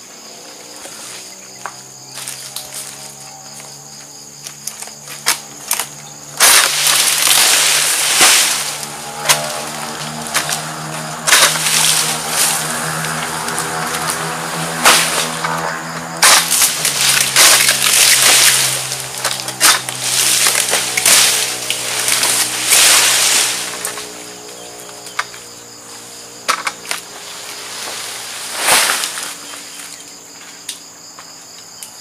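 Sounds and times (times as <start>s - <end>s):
blade cracking through frond: 4.7s - 25.3s, 26.5s - 29.6s
leaves rustling: 5.0s - 25.0s, 26.8s - 30.1s.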